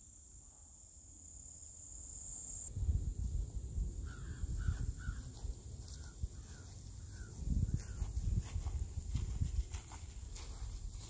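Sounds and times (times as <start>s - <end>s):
high insect buzz: 0.0s - 7.0s
wind buffeting microphone: 2.7s - 11.0s.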